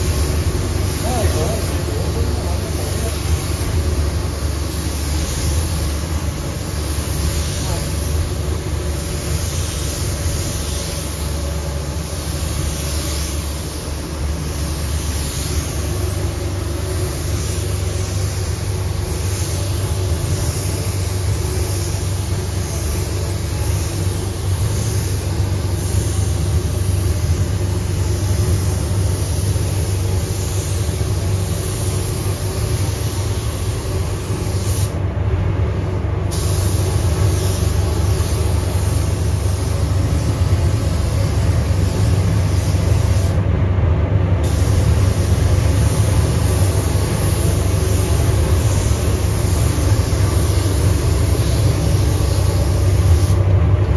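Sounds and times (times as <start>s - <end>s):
spray gun air hiss: 0.0s - 43.5s, 44.3s - 53.9s
low rumble of booth airflow: 0.0s - 53.9s.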